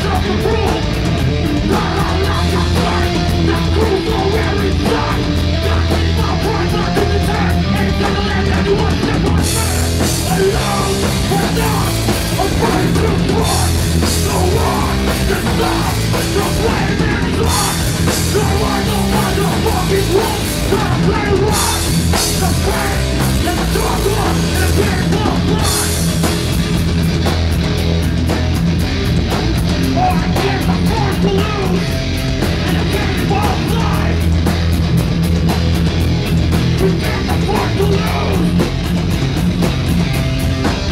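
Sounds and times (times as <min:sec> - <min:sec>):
bass guitar: 0:00.0 - 0:40.9
distorted electric guitar: 0:00.0 - 0:40.9
drum kit: 0:00.0 - 0:40.9.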